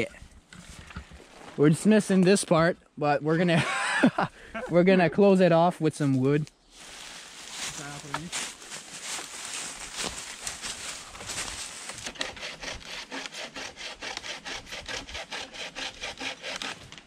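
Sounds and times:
hand saw cutting wood: 10.6 - 17.0.

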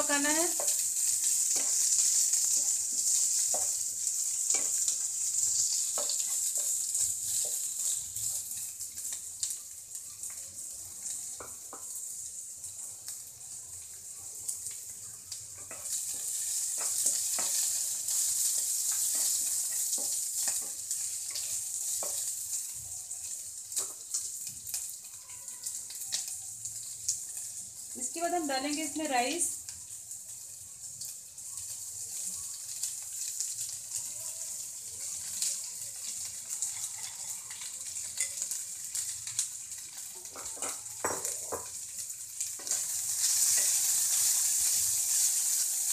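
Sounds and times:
vegetables sizzling in hot oil: 0.0 - 45.9
spatula scraping pan: 42.6 - 45.7.

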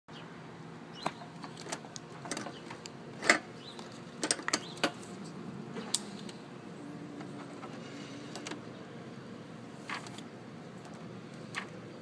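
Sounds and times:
light clicks handling metal parts: 1.0 - 6.4.

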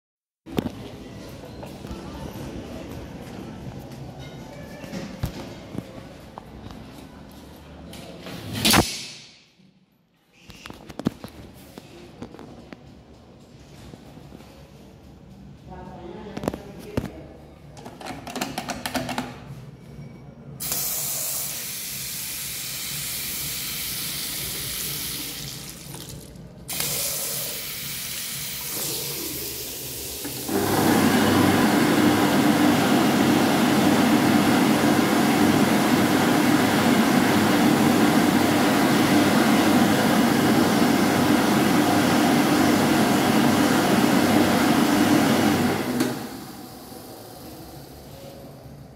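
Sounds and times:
electric hand dryer blowing: 26.7 - 48.0.

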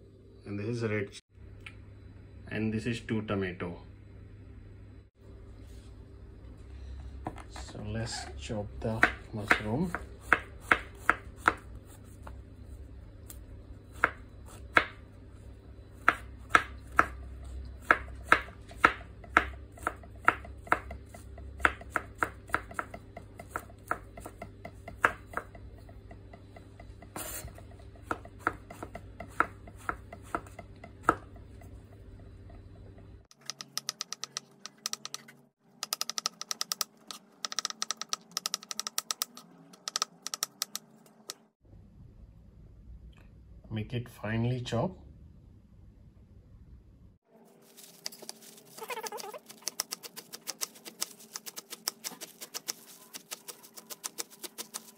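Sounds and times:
knife chopping on wooden board: 8.9 - 11.6, 17.8 - 25.6, 26.2 - 31.8.

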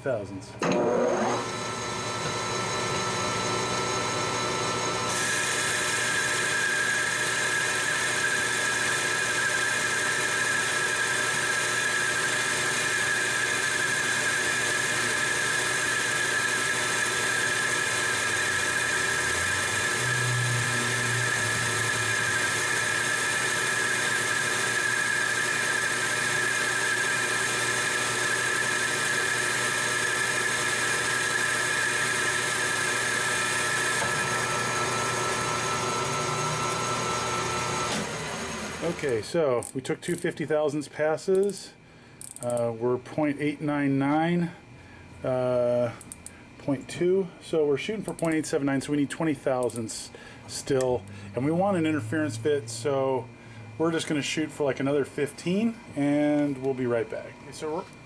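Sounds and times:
metal lathe cutting steel: 0.6 - 39.1.

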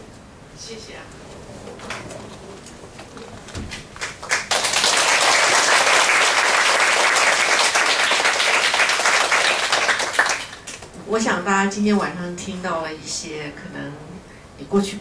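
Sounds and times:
audience applauding: 1.8 - 10.9.

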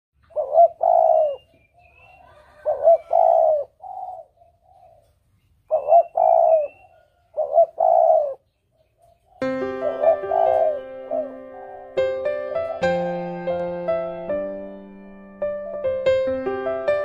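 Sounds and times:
faint bird chirps: 0.2 - 12.0
dove cooing: 0.2 - 12.9.

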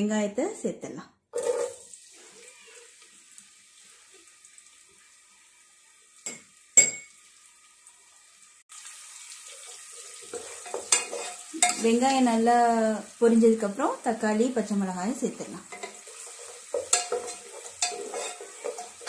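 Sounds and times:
onions sizzling in oil: 1.4 - 19.0
wooden spatula stirring: 9.6 - 12.2, 15.7 - 19.0.

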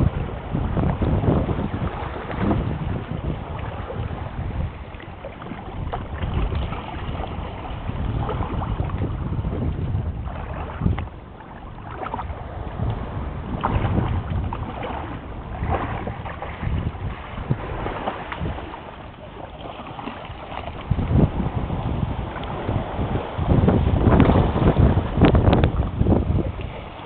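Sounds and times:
sea washing on rocky shore: 0.0 - 27.0
wind buffeting microphone: 0.0 - 27.0.

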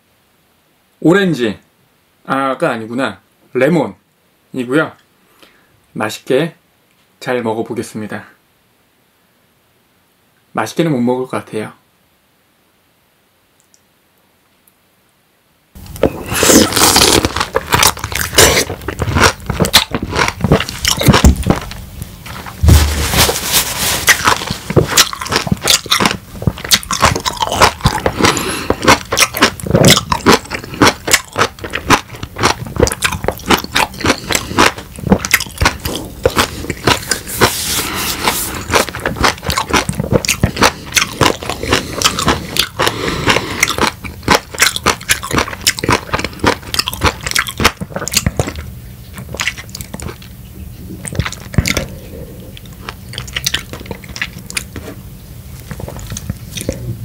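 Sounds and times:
crackling chewing of lemon: 15.8 - 57.0.

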